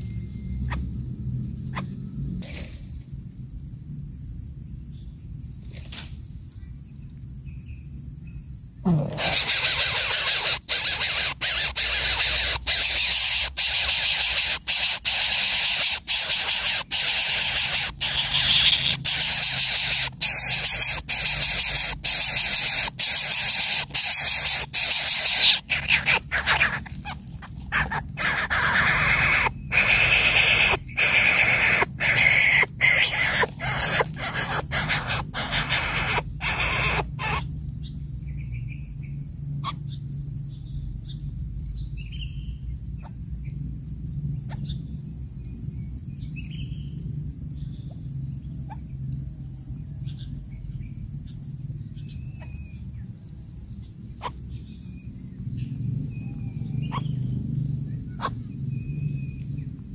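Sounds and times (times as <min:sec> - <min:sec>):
nestling bird rasping hiss: 0:08.9 - 0:37.4.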